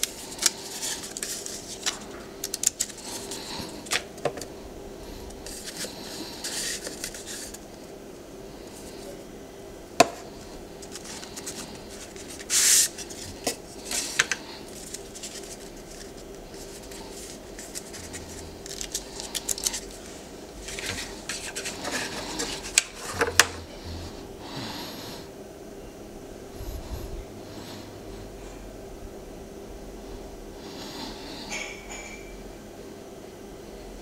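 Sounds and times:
cardboard packaging rubbing and scraping: 0.0s - 4.0s, 5.4s - 7.6s, 10.8s - 23.6s.

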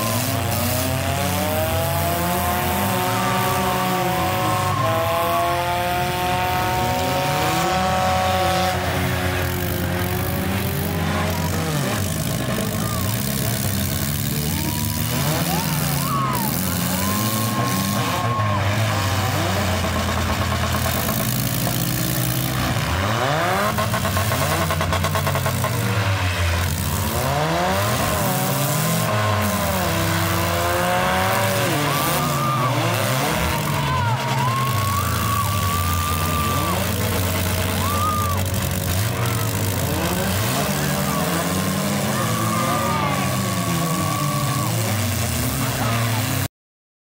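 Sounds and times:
car engines revving hard: 0.0s - 46.5s.

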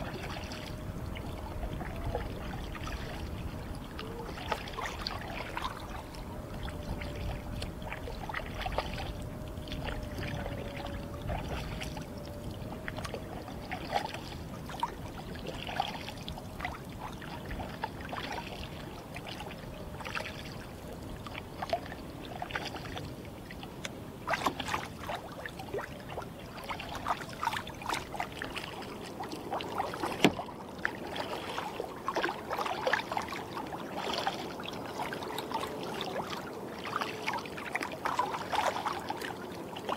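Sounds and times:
waves lapping against kayak hull: 0.0s - 39.9s.

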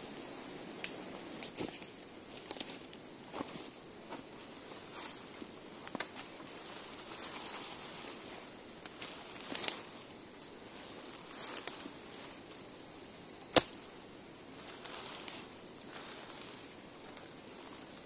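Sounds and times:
scraping rustles in leaf litter: 6.2s - 12.5s, 14.5s - 18.0s
machete chop: 13.5s - 13.8s.

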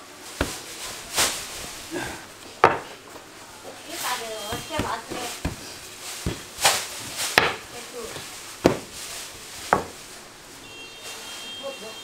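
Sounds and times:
rolling pin knocking on wooden board: 2.6s - 3.3s, 4.5s - 9.0s, 9.7s - 10.0s.

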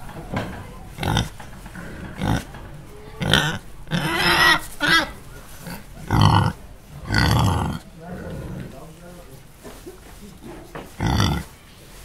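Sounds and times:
pig grunting: 0.9s - 8.8s, 11.0s - 11.5s.

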